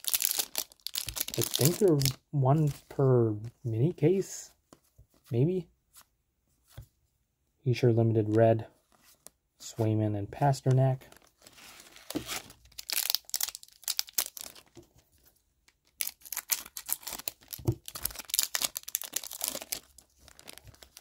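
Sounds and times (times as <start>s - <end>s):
foil wrapper crinkling and tearing: 0.0s - 2.2s, 11.1s - 14.8s, 15.8s - 21.0s.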